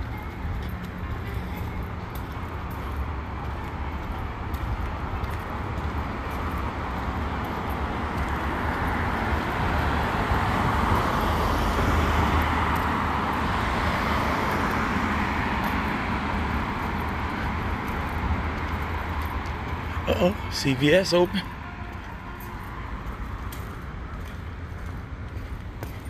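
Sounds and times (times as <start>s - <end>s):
low traffic rumble: 0.0s - 26.0s
passing vehicle: 0.0s - 26.0s.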